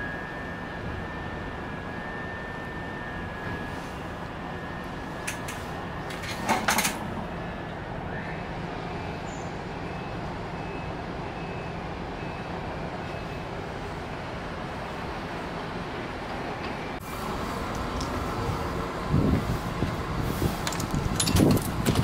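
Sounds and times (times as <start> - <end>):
traffic rumble: 0.0 - 22.0.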